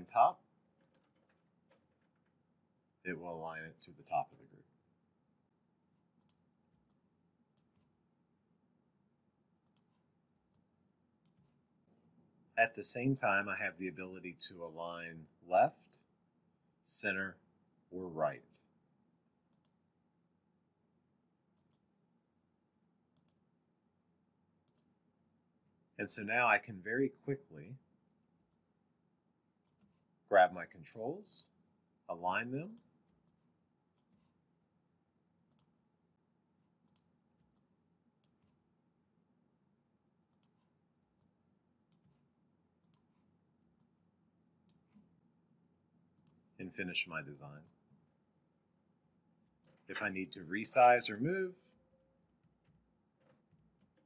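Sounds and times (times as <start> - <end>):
computer mouse clicks: 0.8 - 2.3, 6.2 - 7.9, 9.6 - 10.6, 11.2 - 11.6, 19.5 - 19.8, 21.5 - 21.9, 23.1 - 23.4, 24.6 - 24.9, 29.6 - 30.0, 32.7 - 34.4, 35.5 - 35.8, 36.8 - 38.6, 40.3 - 41.3, 41.9 - 42.2, 42.8 - 43.2, 44.6 - 45.1.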